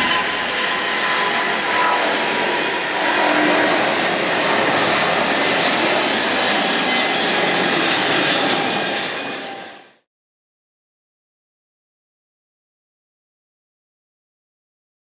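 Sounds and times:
jet engines at takeoff: 0.0 - 10.1.

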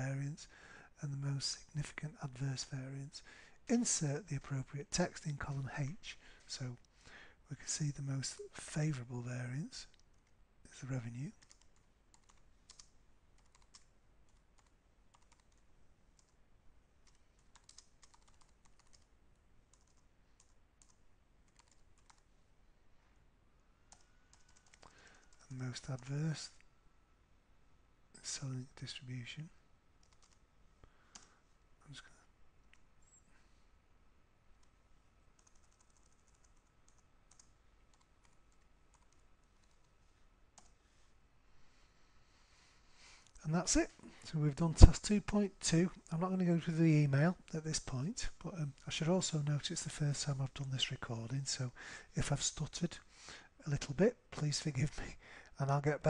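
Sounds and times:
keyboard typing: 11.4 - 16.4, 17.0 - 19.1, 19.7 - 22.3, 23.9 - 26.1, 30.0 - 30.4, 34.6 - 39.9.

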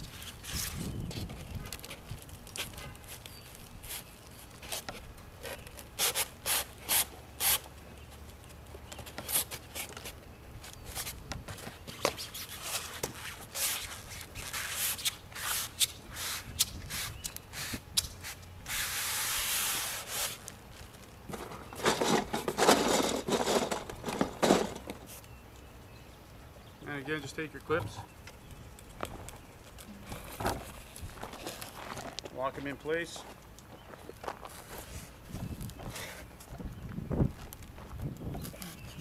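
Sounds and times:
foam scraping against metal track: 21.3 - 25.2.

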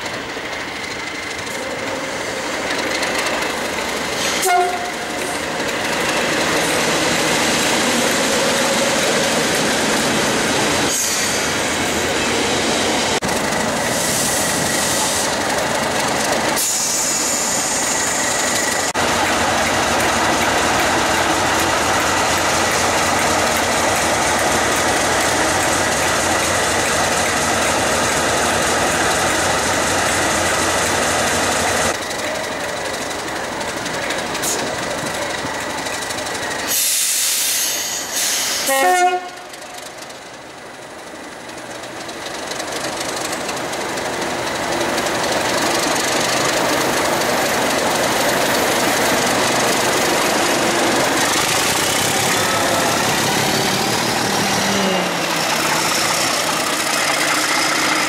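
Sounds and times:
locomotive engine rumbling: 0.0 - 58.0
train horn note: 4.4 - 5.3, 38.6 - 39.5
wheels clacking on rail joints: 18.0 - 37.0, 41.3 - 58.0.

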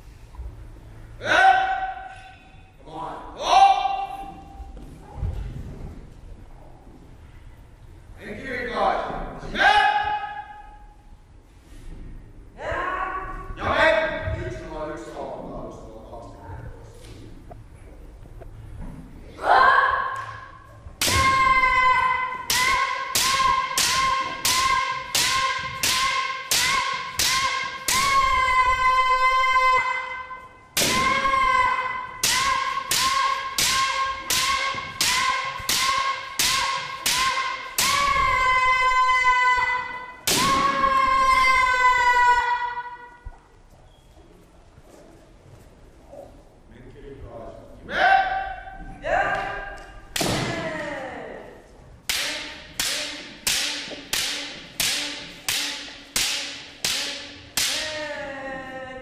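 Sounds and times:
person shouting: 1.2 - 2.4, 3.4 - 4.3, 9.4 - 10.6
bamboo swords clacking: 21.0 - 28.2, 32.2 - 38.2, 52.0 - 58.0.

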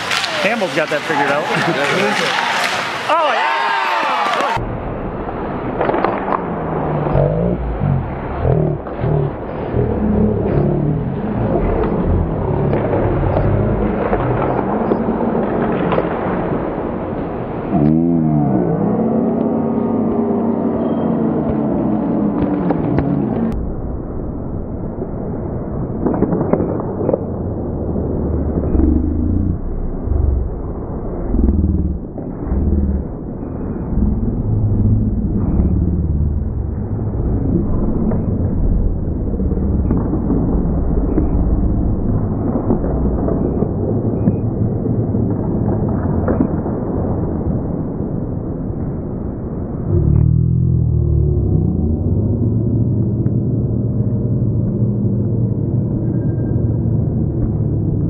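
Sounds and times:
hockey sticks knocking puck: 0.0 - 3.2, 5.8 - 6.5
hockey sticks and puck clacking: 0.0 - 4.6, 5.6 - 7.2, 10.5 - 16.7, 26.0 - 27.5, 39.4 - 46.8
low rink rumble: 0.0 - 58.0.

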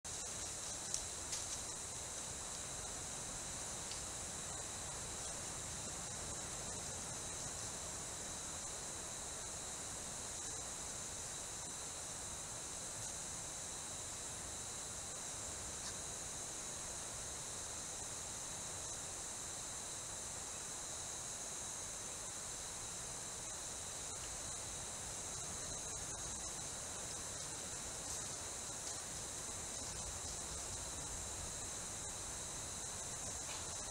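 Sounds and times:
constant whistle-like tone: 0.1 - 33.9
insect chorus buzzing: 0.1 - 33.9.

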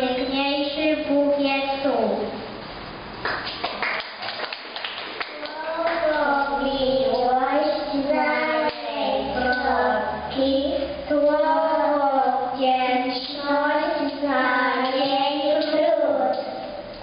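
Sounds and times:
young children singing: 5.3 - 16.8.

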